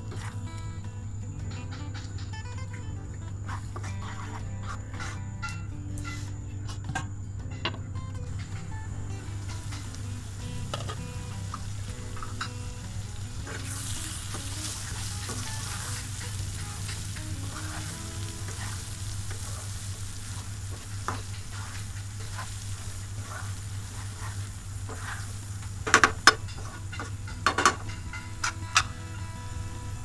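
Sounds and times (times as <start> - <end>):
paste sizzling in oil: 9.2 - 27.2.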